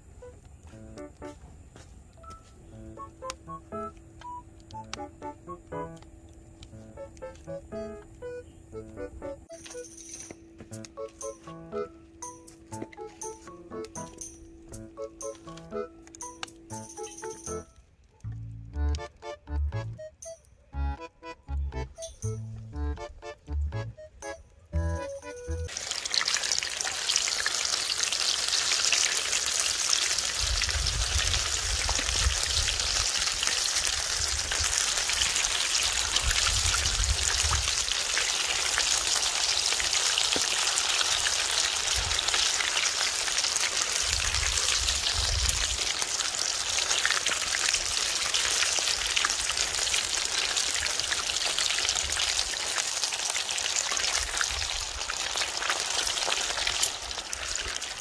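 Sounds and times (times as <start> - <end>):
oil sizzling and crackling: 25.5 - 58.0.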